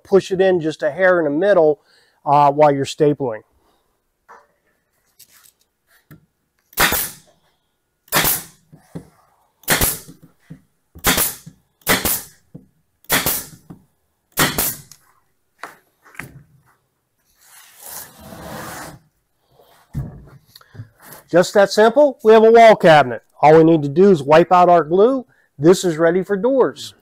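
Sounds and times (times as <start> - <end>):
pneumatic stapler shots into wood: 6.7 - 7.3, 8.1 - 8.6, 9.6 - 10.2, 11.0 - 12.4, 13.0 - 13.6, 14.4 - 14.9.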